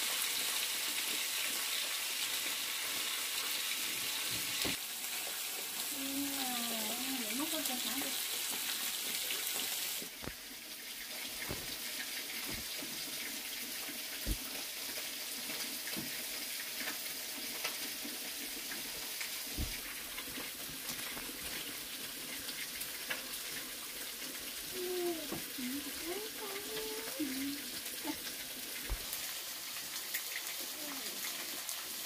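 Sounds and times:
rushing water-like hiss: 0.0 - 32.0
soft knocks and thuds: 11.4 - 11.8, 12.4 - 12.8, 14.2 - 14.5, 19.6 - 19.9, 28.8 - 29.2.

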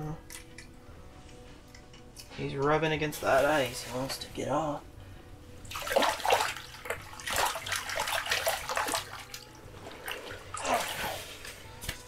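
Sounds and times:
fish splashing in water: 5.7 - 11.4.

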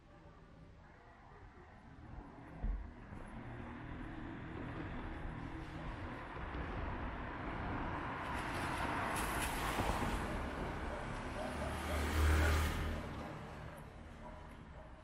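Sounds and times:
motor vehicle passing: 8.4 - 13.8.

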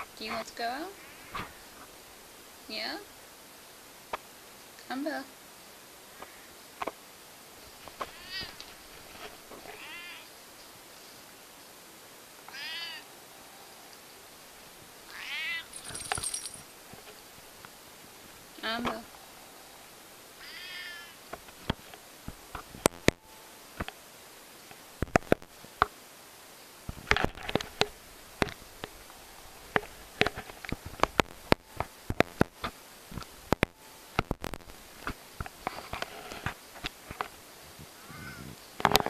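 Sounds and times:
cat meowing: 8.1 - 8.6, 9.7 - 10.3, 12.5 - 13.1, 15.1 - 15.8, 20.4 - 21.2, 38.0 - 38.5.

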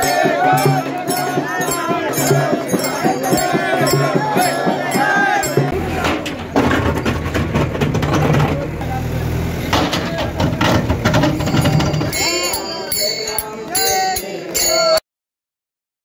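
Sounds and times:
crowd singing and calling out: 0.0 - 7.8, 8.6 - 15.0
backhoe engine droning: 5.5 - 12.6.

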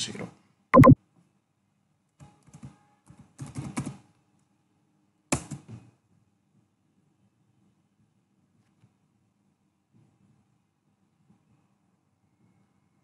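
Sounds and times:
keyboard typing: 0.8 - 1.0.

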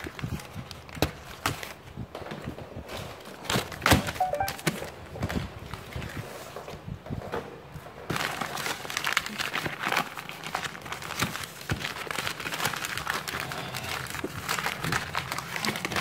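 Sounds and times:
paper crumpling: 8.2 - 16.0.

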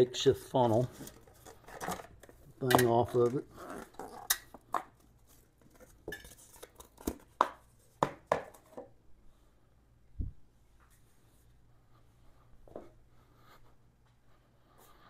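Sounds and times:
cardboard handling clicks and knocks: 1.0 - 8.9.

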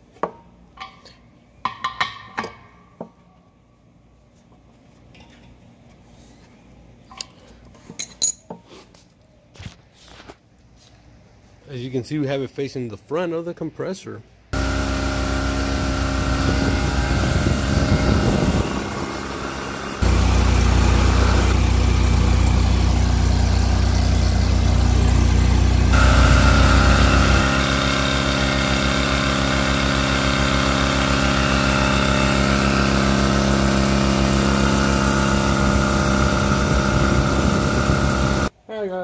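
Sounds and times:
air compressor running: 14.6 - 38.5.

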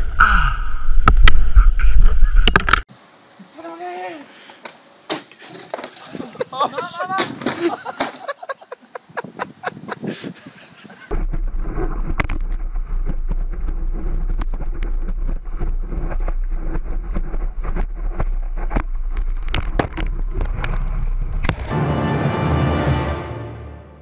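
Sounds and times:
wind buffeting microphone: 8.9 - 21.6.

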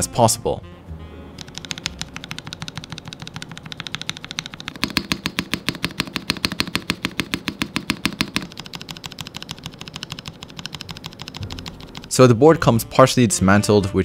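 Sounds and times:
rapid keyboard clacking: 1.4 - 12.4.

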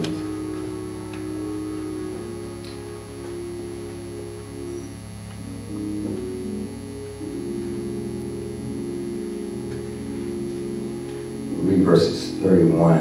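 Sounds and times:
sustained keyboard chords: 0.0 - 13.0.

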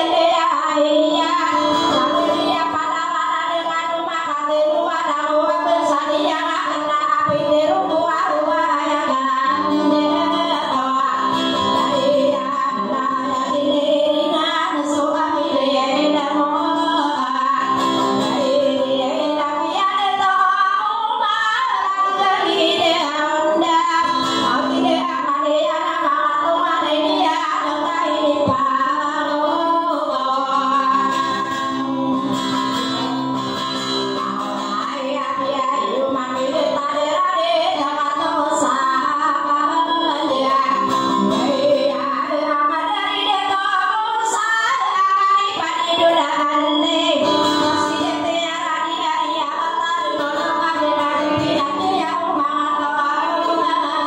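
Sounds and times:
woman singing: 0.0 - 33.2, 33.8 - 54.0
acoustic guitar strumming: 5.6 - 20.3, 21.6 - 37.0, 38.6 - 43.6, 45.5 - 52.5.

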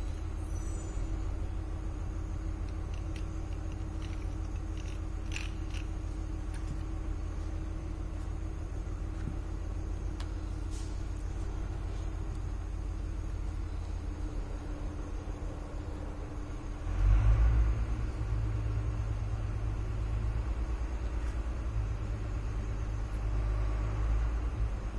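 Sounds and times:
low rumble with hum: 0.0 - 24.9.

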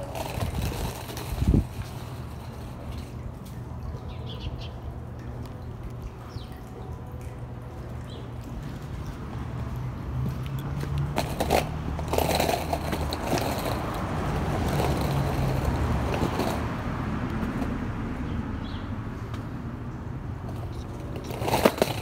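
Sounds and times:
skateboard wheels rumbling on concrete: 0.0 - 3.2, 8.4 - 22.0.

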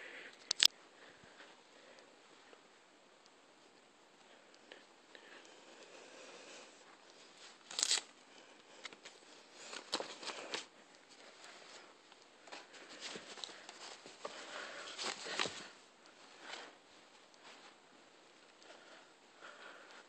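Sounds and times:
sharp clicks and scuffs: 0.4 - 0.7
fabric rustling and scraping: 8.9 - 19.2.

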